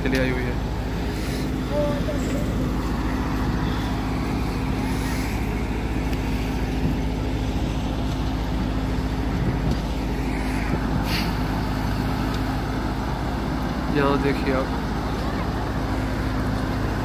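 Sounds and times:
combine harvester engine running: 0.0s - 17.0s
short hiss: 11.0s - 11.4s.

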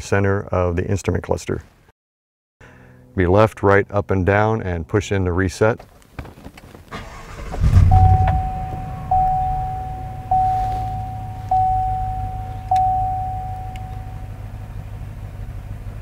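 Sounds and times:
truck engine idling: 7.0s - 16.0s
dashboard warning chime: 7.1s - 14.6s.

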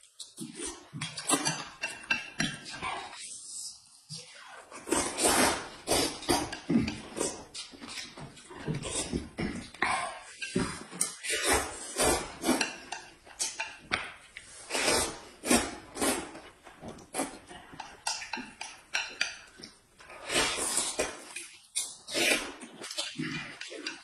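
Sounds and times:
slurping and chewing noodles: 0.0s - 24.0s
chopsticks clicking on dishes: 1.2s - 2.8s, 12.4s - 14.2s, 17.7s - 19.8s.

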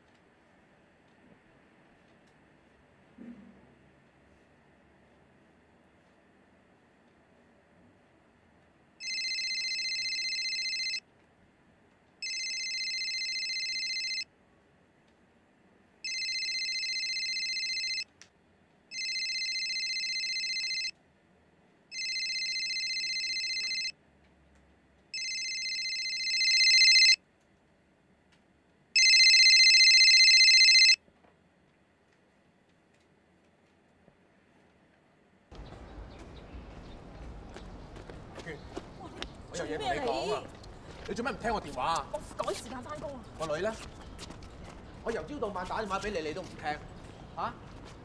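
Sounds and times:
mobile phone ringtone: 9.0s - 11.0s, 12.2s - 14.2s, 16.0s - 18.0s, 18.9s - 20.9s, 21.9s - 23.9s, 25.2s - 27.2s, 29.0s - 31.0s.

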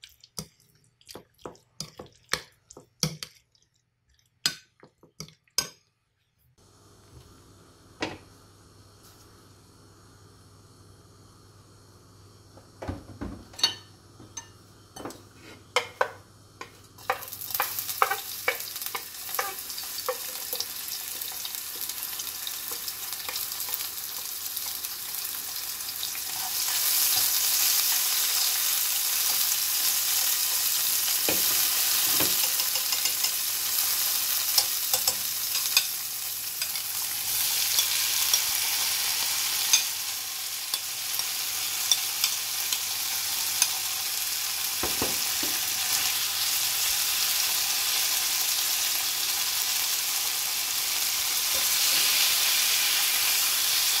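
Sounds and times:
vegetables sizzling in hot oil: 13.6s - 54.0s.

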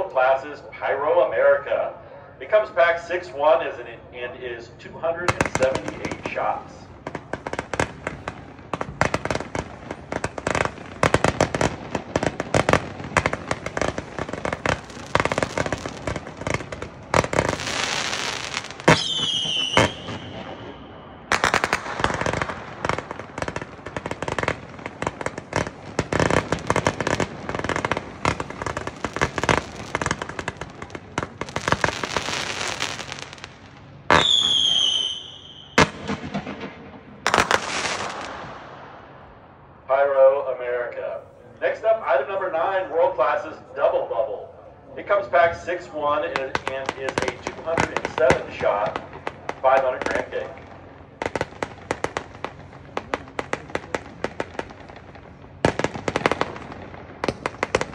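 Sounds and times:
firework volleys crackling: 4.4s - 38.9s, 45.6s - 57.9s
firework hissing: 26.2s - 35.2s.

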